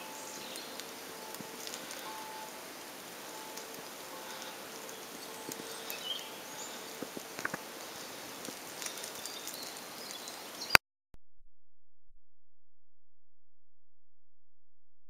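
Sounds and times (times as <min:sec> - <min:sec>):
steady hiss: 0:00.0 - 0:10.8
small clicks and crackles: 0:00.4 - 0:10.8.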